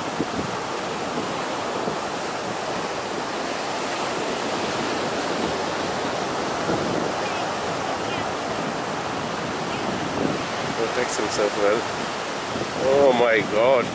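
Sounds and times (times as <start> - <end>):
small waves breaking on beach: 0.0 - 13.9.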